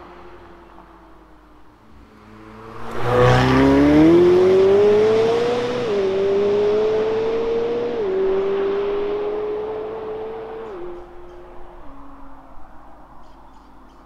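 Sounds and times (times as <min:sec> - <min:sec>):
sports car accelerating hard: 0:02.2 - 0:12.6.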